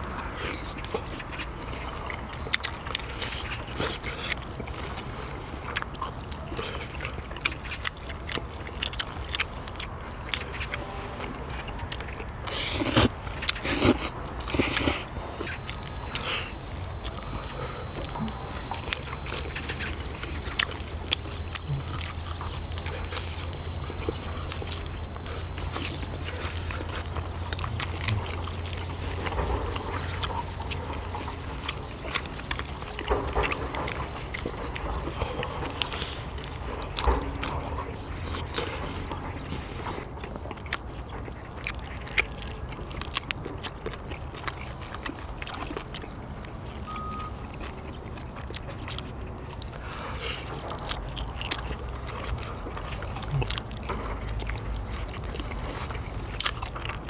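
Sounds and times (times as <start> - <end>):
chewing and mouth noises: 0.0 - 57.0
low hum: 15.1 - 40.3.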